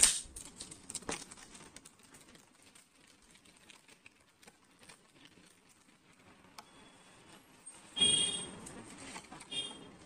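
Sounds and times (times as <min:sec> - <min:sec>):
cellophane wrap crinkling: 0:00.0 - 0:06.6.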